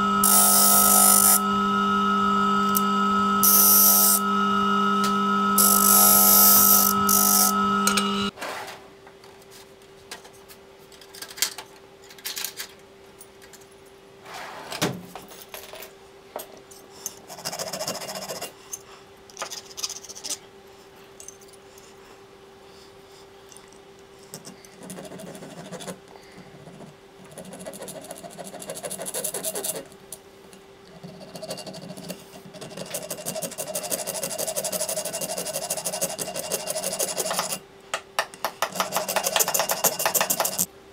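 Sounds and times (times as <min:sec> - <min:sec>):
steady low hum: 0:00.0 - 0:08.3
hand file scraping metal: 0:05.6 - 0:08.0, 0:27.4 - 0:29.9, 0:31.0 - 0:37.6, 0:38.6 - 0:40.7.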